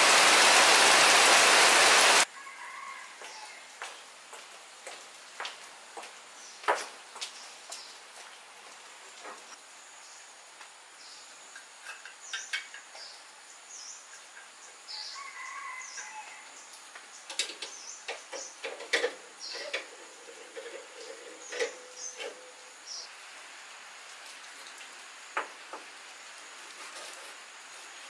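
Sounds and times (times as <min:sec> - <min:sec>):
birds chirping: 0:19.4 - 0:23.1.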